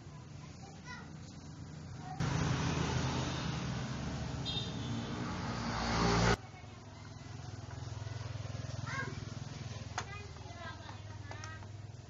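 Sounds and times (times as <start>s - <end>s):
generator engine humming: 0.0s - 5.8s
loud rushing noise: 2.2s - 6.4s.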